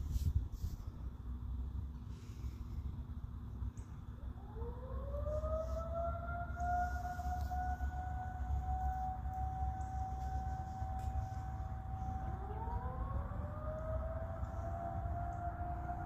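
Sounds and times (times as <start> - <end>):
warning siren winding up: 4.3 - 16.0.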